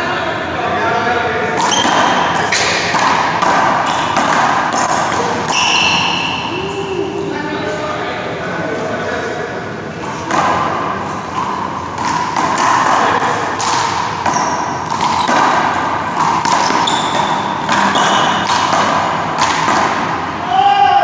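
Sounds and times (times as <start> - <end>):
sneaker squeaks: 1.6 - 2.7, 3.8 - 6.8, 14.1 - 18.5
handball smacking wall and floor: 1.6 - 6.3, 10.2 - 20.3.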